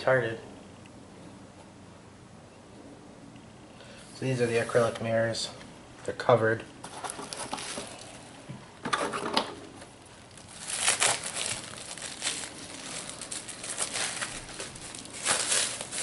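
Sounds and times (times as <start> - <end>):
plastic wrap crinkling: 6.8 - 8.3, 10.0 - 16.0.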